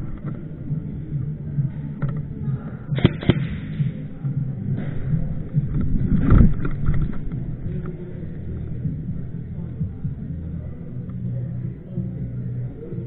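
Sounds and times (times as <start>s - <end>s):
low rumble: 0.0s - 13.0s
airsoft shots: 3.0s - 3.8s.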